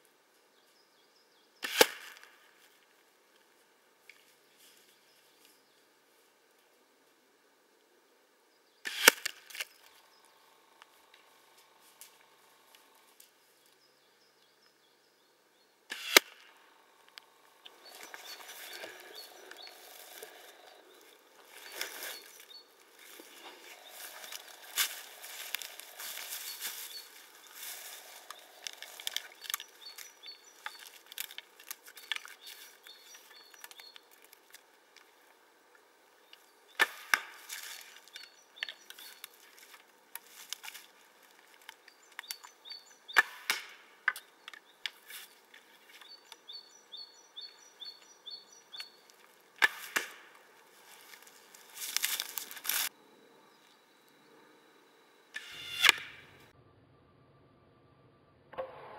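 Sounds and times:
arrows shot and striking: 0:08.9 - 0:09.5, 0:15.9 - 0:16.5.

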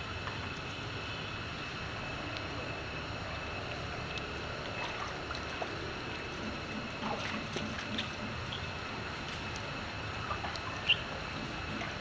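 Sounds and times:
low background rumble: 0:00.0 - 0:12.0
monkeys splashing in water: 0:03.6 - 0:12.0.

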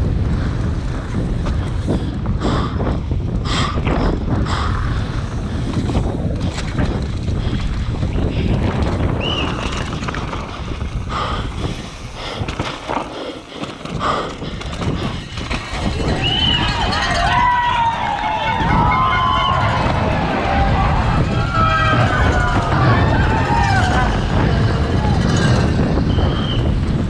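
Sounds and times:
bike clattering over bumps: 0:00.0 - 0:27.0
tyres rumbling on dirt: 0:00.0 - 0:27.0
wind on microphone: 0:00.0 - 0:27.0.

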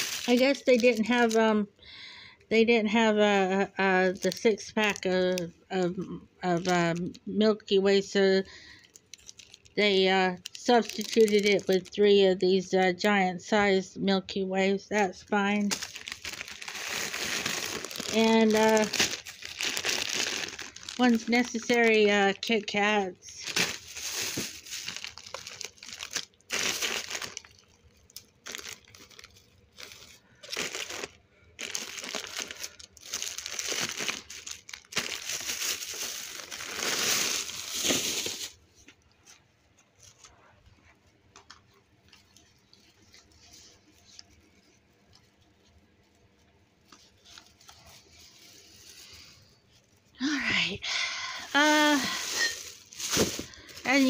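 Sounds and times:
plastic bags rustling and crinkling: 0:00.0 - 0:01.6, 0:03.0 - 0:07.2, 0:07.9 - 0:12.3, 0:15.0 - 0:54.0.

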